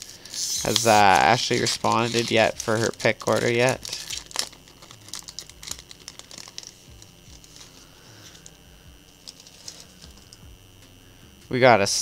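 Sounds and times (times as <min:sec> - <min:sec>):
foil wrapper crinkling and tearing: 0:00.0 - 0:08.6, 0:09.2 - 0:10.3.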